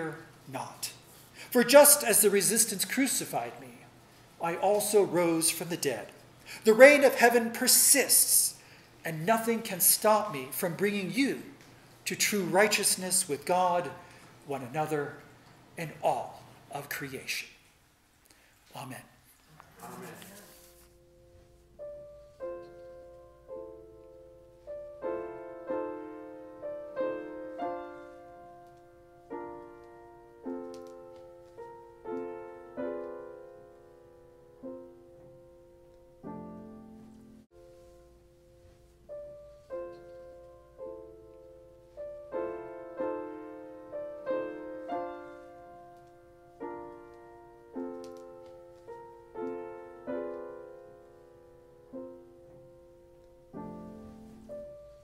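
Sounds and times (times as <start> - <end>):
slow solo piano piece: 20.5 - 55.0.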